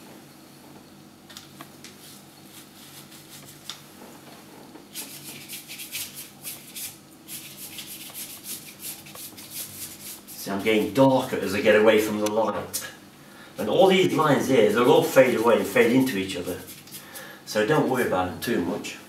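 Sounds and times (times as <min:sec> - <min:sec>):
faint steady hum: 0:00.0 - 0:19.0
paintbrush scrubbing on paper: 0:02.0 - 0:03.7, 0:04.9 - 0:11.3, 0:14.7 - 0:17.2.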